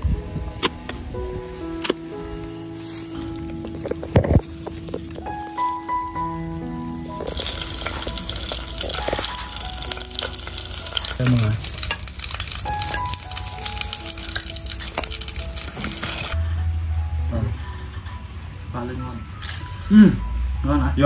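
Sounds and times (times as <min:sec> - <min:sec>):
background music: 0:00.0 - 0:21.0
frying in hot oil: 0:07.0 - 0:16.4.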